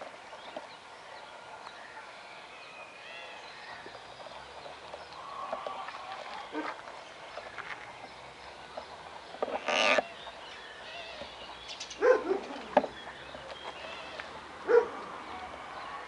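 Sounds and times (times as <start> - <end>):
animal calling: 9.5 - 10.2.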